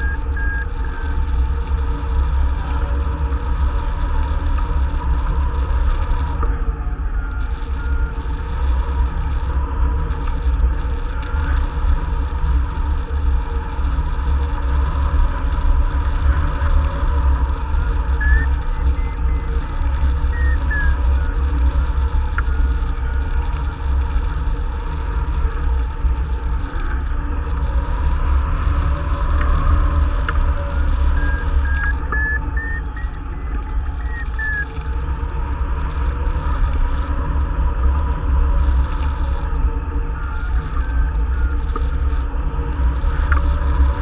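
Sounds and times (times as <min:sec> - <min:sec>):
variometer tone changing pitch: 0:18.2 - 0:19.5, 0:20.4 - 0:21.0, 0:31.1 - 0:34.7.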